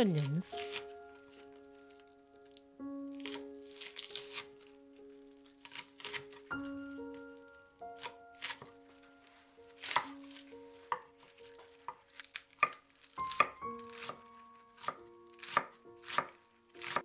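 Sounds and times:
quiet background music: 0:00.0 - 0:17.0
knife chopping on wooden board: 0:14.8 - 0:17.0.

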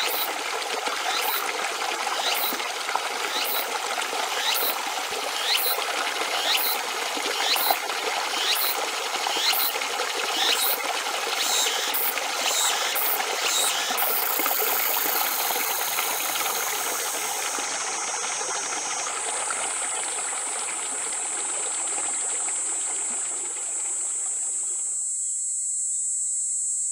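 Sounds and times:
high-pitched hiss: 0:11.9 - 0:19.6.

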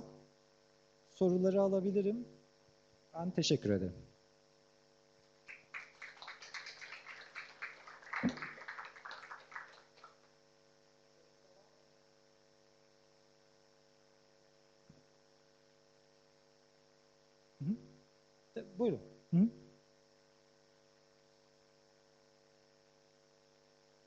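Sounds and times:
electrical mains hum: 0:00.0 - 0:24.0
audience applauding: 0:05.4 - 0:10.3.

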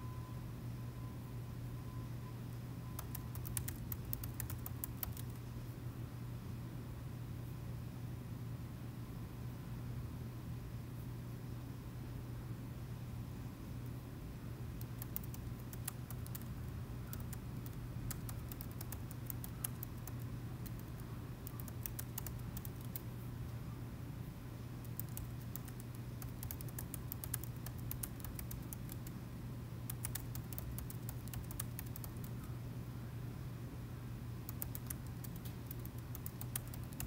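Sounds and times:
steady low hum: 0:00.0 - 0:37.0
laptop keyboard typing: 0:03.0 - 0:05.4, 0:14.8 - 0:23.1, 0:24.8 - 0:29.2, 0:29.9 - 0:32.4, 0:34.5 - 0:37.0.

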